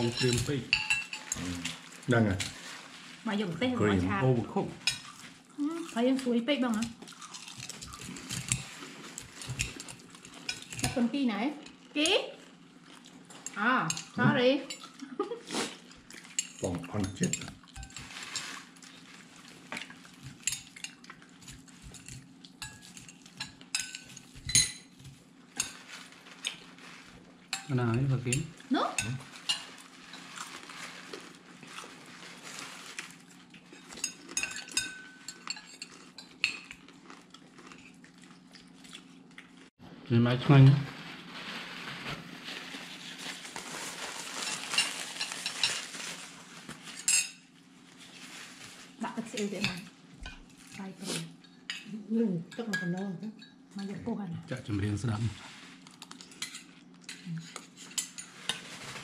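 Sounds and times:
cutlery clinking against plates: 0:00.0 - 0:01.4, 0:16.2 - 0:18.1, 0:19.8 - 0:25.0, 0:33.8 - 0:36.8, 0:47.0 - 0:47.4.

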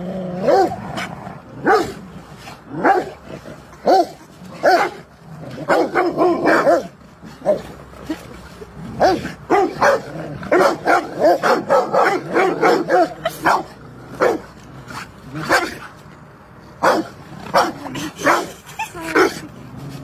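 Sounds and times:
dogs barking: 0:00.4 - 0:02.0, 0:03.8 - 0:05.0, 0:05.6 - 0:07.7, 0:09.0 - 0:14.5, 0:16.8 - 0:19.5.

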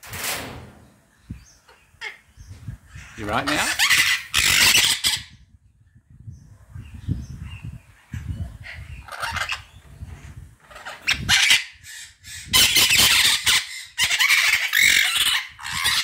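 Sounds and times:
parrot squawking: 0:03.1 - 0:05.3, 0:08.6 - 0:09.7, 0:10.7 - 0:16.0.

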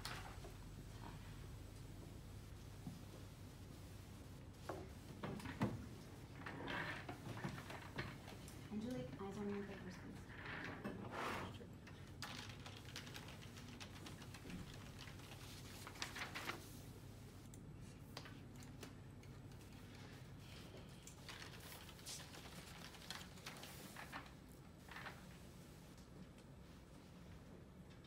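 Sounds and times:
low room hum: 0:00.0 - 0:28.0
typing on laptop keyboards: 0:11.8 - 0:16.5, 0:21.0 - 0:24.3.

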